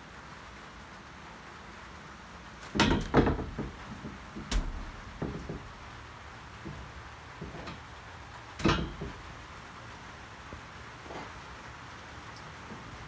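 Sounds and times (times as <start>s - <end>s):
knocks and thumps: 2.7s - 6.0s, 6.6s - 7.9s, 8.6s - 9.3s.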